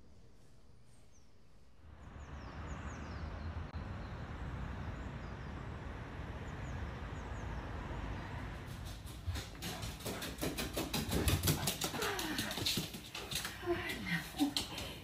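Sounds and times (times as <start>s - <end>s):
small birds chirping: 2.0s - 5.8s.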